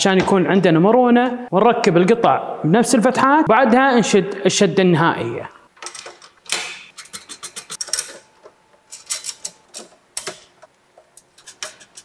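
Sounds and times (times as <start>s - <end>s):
metallic clicks and rattles: 5.8s - 12.0s.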